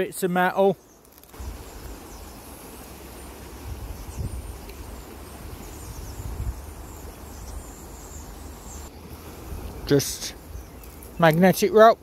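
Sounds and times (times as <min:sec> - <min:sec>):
wind buffeting microphone: 0:03.6 - 0:07.7
faint high bird chirps: 0:03.8 - 0:08.9.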